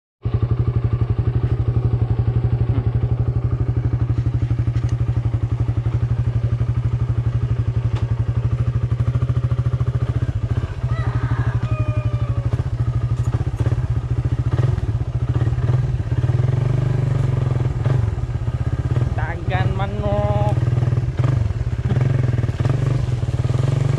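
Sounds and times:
vehicle engine running: 0:00.2 - 0:23.9.

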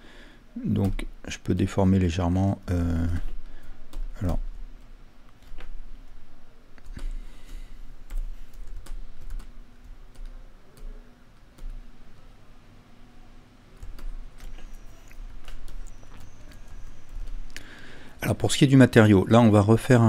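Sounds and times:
keyboard and mouse clicks: 0:13.8 - 0:17.6.

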